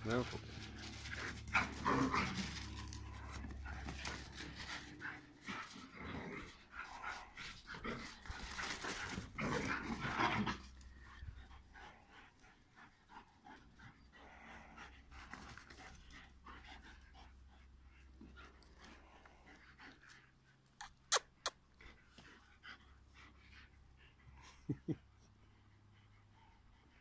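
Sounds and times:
dogs panting: 0.0 - 20.8, 21.8 - 27.0
dogs play-fighting: 0.1 - 27.0.

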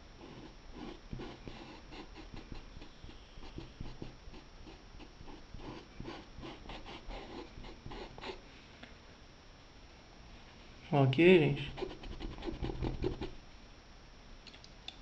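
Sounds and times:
paintbrush scratching on fabric: 0.3 - 8.4, 11.6 - 13.4.

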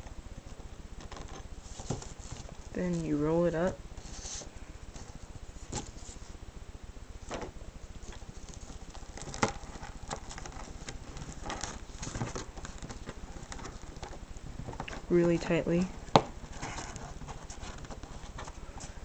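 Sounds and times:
tape rustling: 0.3 - 6.4, 7.2 - 19.0
small clicks and crackles: 7.3 - 19.0.

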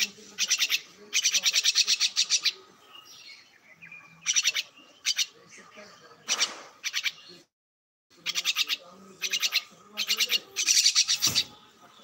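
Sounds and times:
myna harsh clicking calls: 0.0 - 2.6, 6.3 - 7.2, 8.2 - 11.5.

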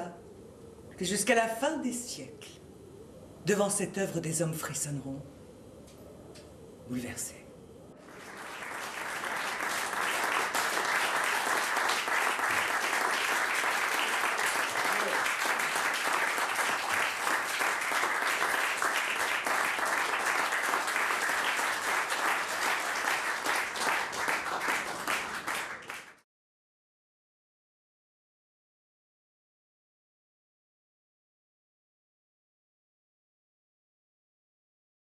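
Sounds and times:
audience applauding: 8.0 - 26.2.

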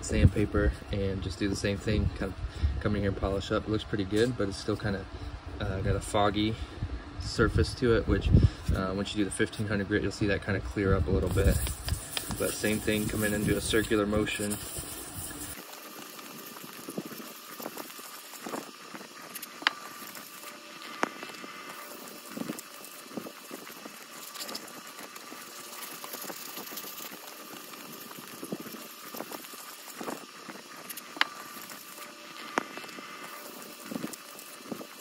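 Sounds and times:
sandpaper rubbing on metal: 11.2 - 35.0.

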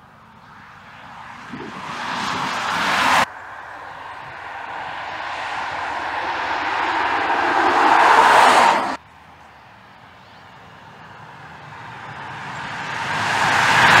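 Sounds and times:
car driving past: 1.1 - 9.0, 11.7 - 14.0.

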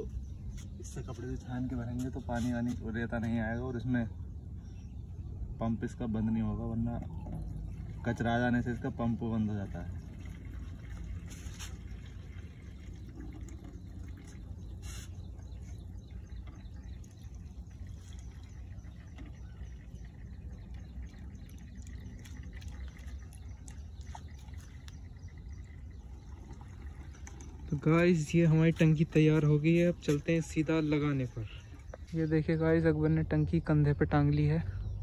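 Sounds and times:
water trickling into tank: 6.6 - 32.1.

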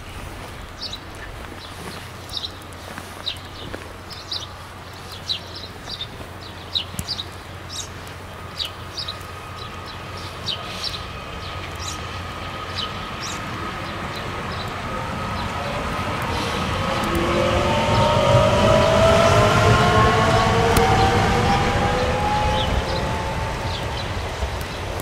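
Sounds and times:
small birds chirping: 0.0 - 18.7, 21.9 - 25.0
train rumble: 0.0 - 25.0
train whine: 8.2 - 25.0.

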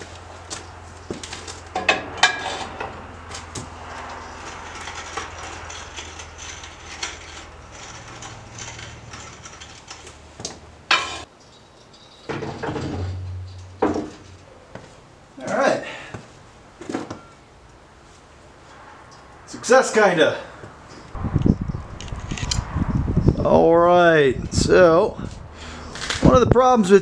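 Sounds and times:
metallic clanks and rattles: 1.2 - 14.5.

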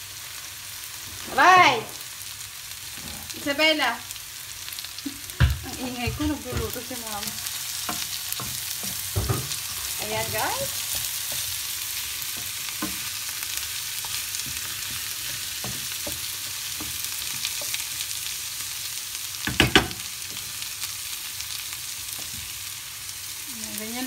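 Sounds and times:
food sizzling in a frying pan: 0.0 - 24.0
wooden spatula scraping a pan: 1.0 - 2.1, 5.7 - 18.3.

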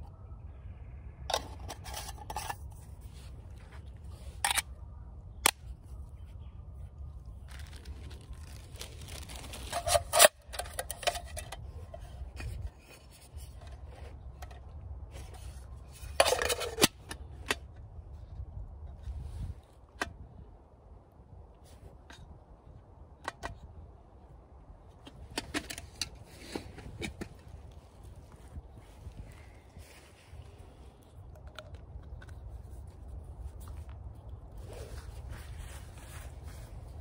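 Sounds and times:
objects scraping and clicking: 1.3 - 4.8, 7.5 - 17.7, 25.0 - 37.0.

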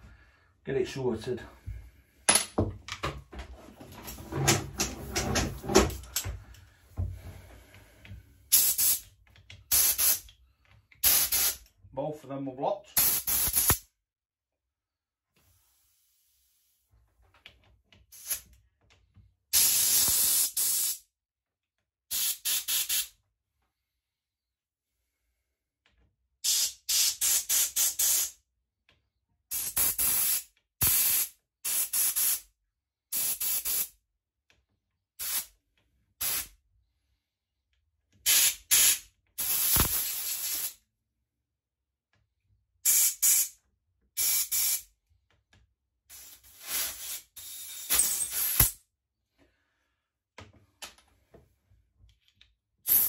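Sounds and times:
spray hissing bursts: 11.0 - 11.6, 13.0 - 13.8, 38.3 - 40.8.

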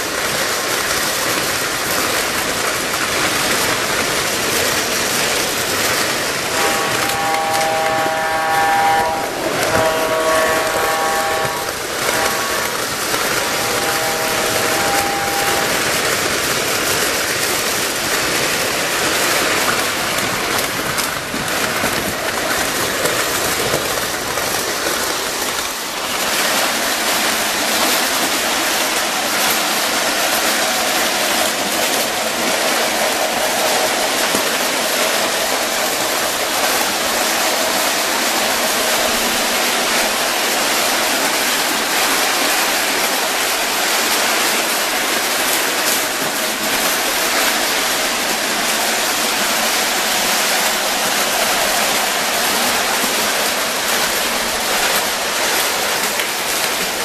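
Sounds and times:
toy locomotive motors: 0.0 - 25.9
toy train wheels rattling on rails: 0.0 - 57.0.

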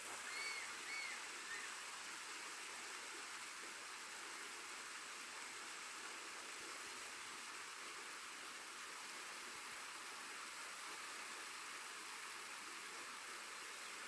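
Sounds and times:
steady hiss: 0.0 - 14.0
short arching chirps: 0.3 - 1.7.

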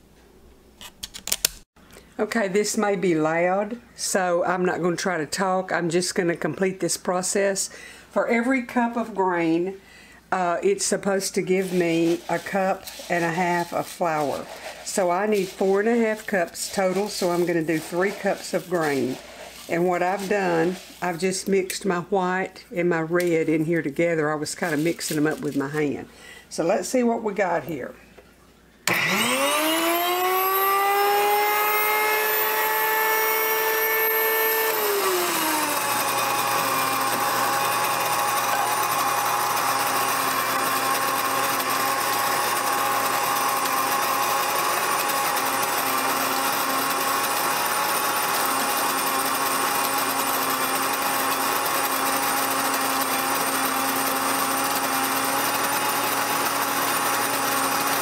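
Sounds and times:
grain mill motor grinding: 11.6 - 21.2, 28.9 - 58.0.

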